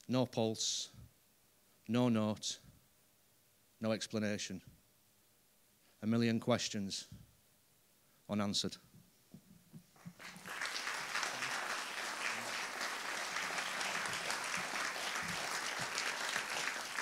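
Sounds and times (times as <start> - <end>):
audience applauding: 10.0 - 17.0.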